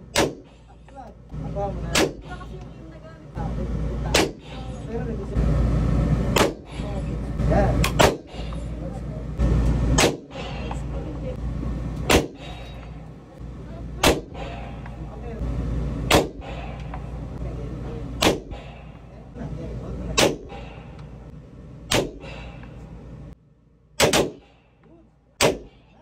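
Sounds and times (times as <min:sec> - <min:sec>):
steady low hum: 0:00.0 - 0:26.0
pistol shots echoing: 0:12.1 - 0:12.5, 0:16.1 - 0:16.4, 0:18.2 - 0:18.5, 0:20.2 - 0:20.5, 0:21.9 - 0:22.2, 0:24.0 - 0:24.5, 0:25.4 - 0:25.7.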